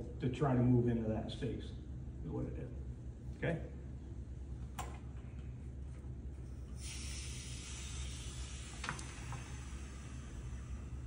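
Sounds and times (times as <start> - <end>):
low hum: 0.0 - 11.0
air hissing into jar: 6.7 - 11.0.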